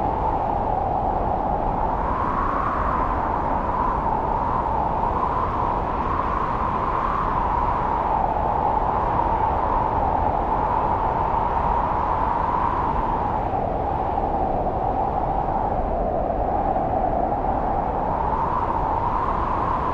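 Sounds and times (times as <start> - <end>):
strong wind rushing through forest: 0.0 - 19.9.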